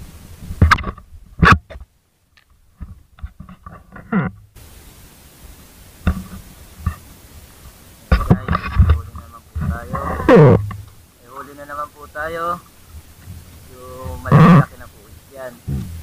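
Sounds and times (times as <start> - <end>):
muffled rubbing and clicks: 0.0 - 16.0
wind hiss on microphone: 0.0 - 16.0.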